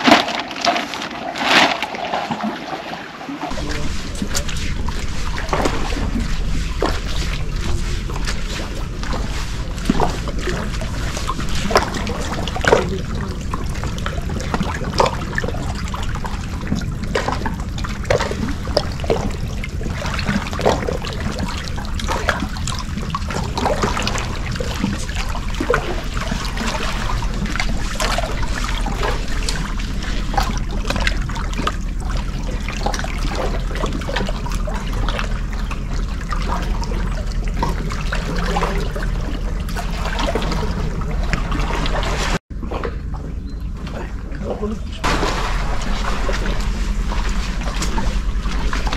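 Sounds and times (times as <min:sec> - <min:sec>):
waves lapping on rocks: 0:00.0 - 0:42.4, 0:45.0 - 0:48.9
low rumble: 0:03.5 - 0:48.9.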